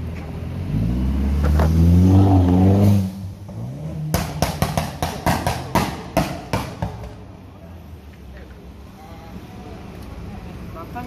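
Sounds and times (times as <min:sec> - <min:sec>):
car engine revving past: 0:00.4 - 0:04.7.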